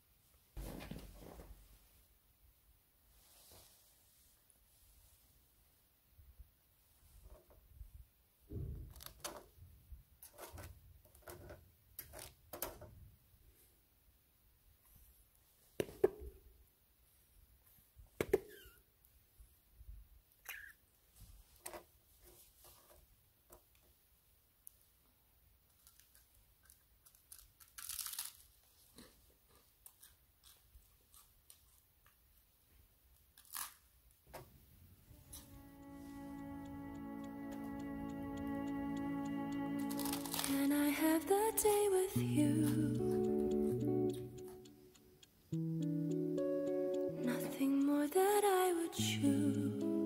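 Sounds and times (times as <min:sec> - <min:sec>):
crunch: 0:25.7 - 0:32.2, 0:33.2 - 0:33.9.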